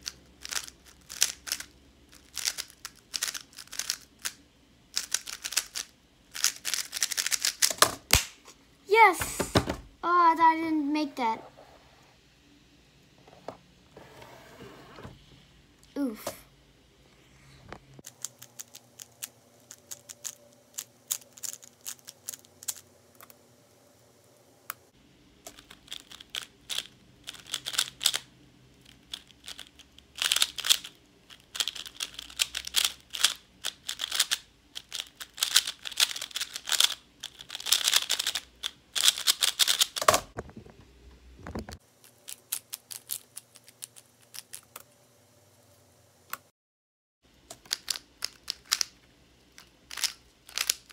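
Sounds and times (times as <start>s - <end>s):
puzzle cube turning clacks: 0.0s - 4.4s, 5.0s - 7.8s, 18.0s - 23.3s, 25.5s - 28.2s, 28.9s - 40.2s, 47.5s - 48.9s, 49.6s - 50.9s.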